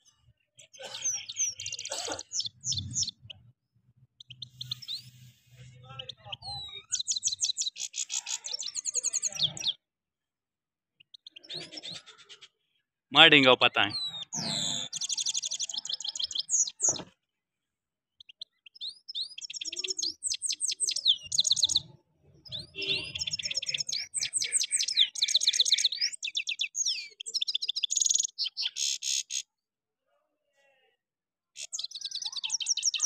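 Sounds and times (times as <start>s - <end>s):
goldfinch twittering song: 1.1s - 3.4s, 4.2s - 5.4s, 6.0s - 9.8s, 13.8s - 17.0s, 18.2s - 29.4s.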